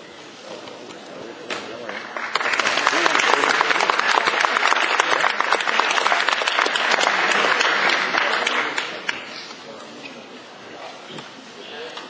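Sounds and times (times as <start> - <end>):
audience applauding: 1.8 - 9.3.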